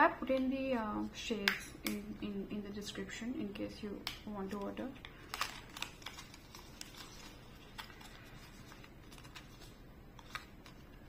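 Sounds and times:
plastic packaging crackling: 4.3 - 11.0.

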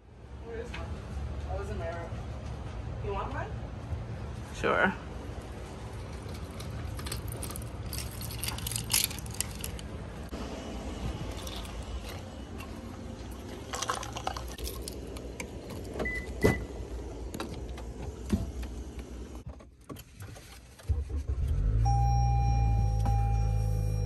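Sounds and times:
car engine starting and idling: 5.8 - 24.0.

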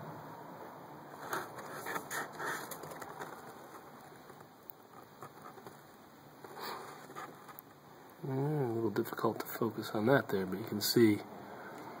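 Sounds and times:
faint background hiss: 0.0 - 12.0
cardboard and paper rustling: 1.2 - 5.8, 6.4 - 7.7.

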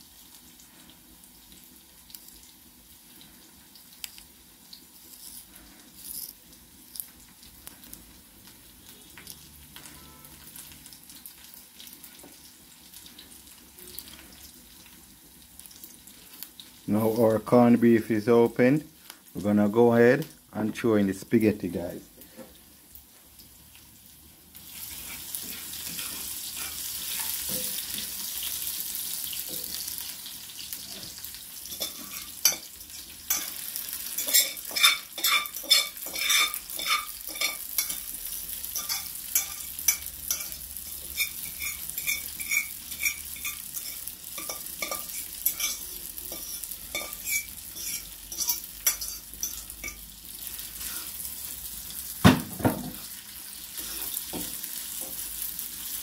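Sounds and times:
pasta sizzling in oil: 0.0 - 20.5, 21.1 - 56.0
metal tongs scraping pan: 24.8 - 28.1, 31.7 - 38.1, 38.8 - 50.0.

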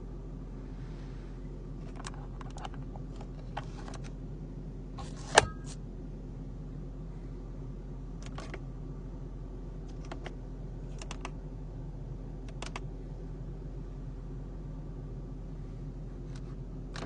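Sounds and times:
car cabin drone: 0.0 - 17.0
small clicks and taps: 11.0 - 11.4.

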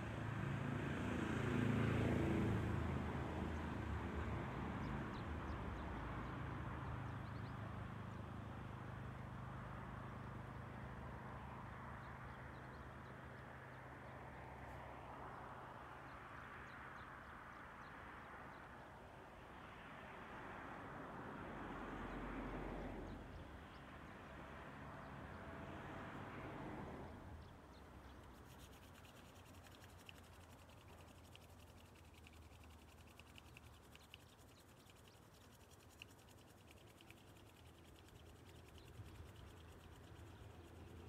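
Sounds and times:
faint high ticking: 27.8 - 41.0.

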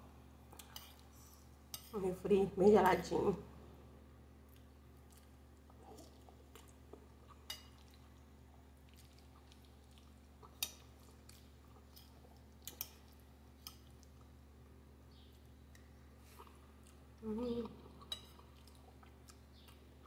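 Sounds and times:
low steady hum: 0.0 - 20.0
faint chewing: 0.5 - 1.9, 4.4 - 20.0
fork clicking on a plate: 12.6 - 13.0.

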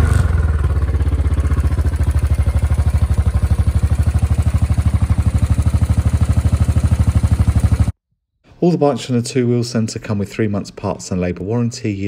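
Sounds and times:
motorcycle engine idling: 0.0 - 8.0.

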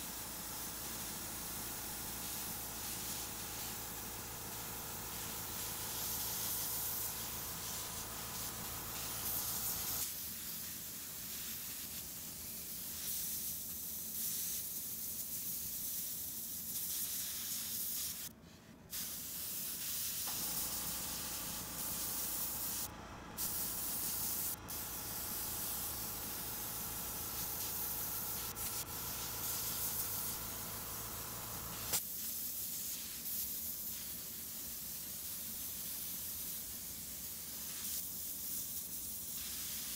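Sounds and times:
airbrush air hiss: 0.0 - 39.9
compressor humming: 0.4 - 10.0, 20.3 - 32.0.

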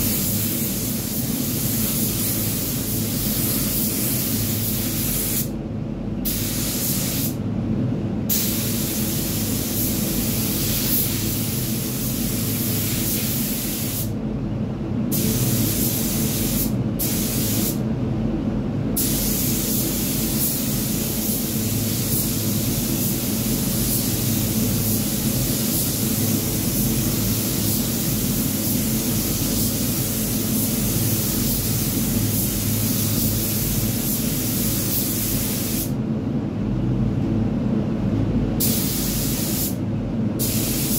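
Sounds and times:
paint spray gun hissing: 0.0 - 5.5, 19.0 - 35.9, 38.6 - 39.8, 40.4 - 40.9
steady low hum: 0.0 - 40.9.

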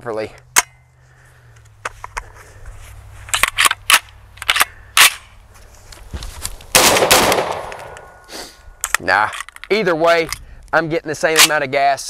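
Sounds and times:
shotgun action metallic clicks: 3.3 - 5.4, 7.0 - 8.1.

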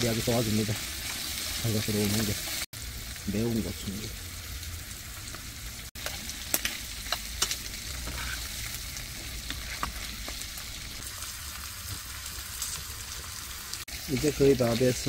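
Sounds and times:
shrimp sizzling in frying pan: 0.0 - 15.0.

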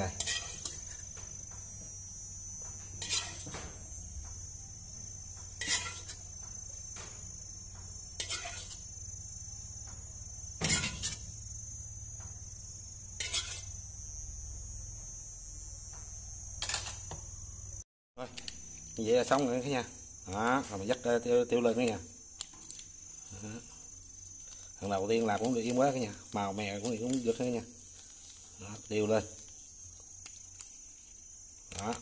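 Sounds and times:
utensil scraping frying pan: 0.0 - 1.2, 2.9 - 3.6, 5.5 - 6.4, 8.1 - 9.0, 10.6 - 11.4, 13.2 - 13.8, 16.6 - 17.1
crickets chirring: 0.0 - 32.0.

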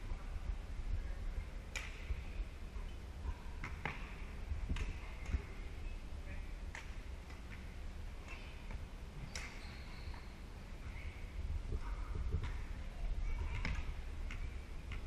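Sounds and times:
rackets hitting shuttlecock: 1.7 - 2.2, 3.6 - 5.5, 13.5 - 15.0.

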